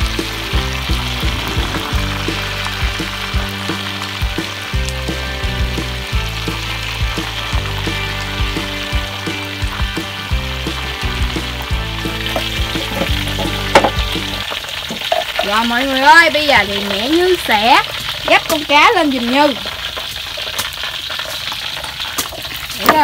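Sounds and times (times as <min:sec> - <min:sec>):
background music with beat: 0:00.0 - 0:14.5
fish deep-frying in oil: 0:00.0 - 0:23.0.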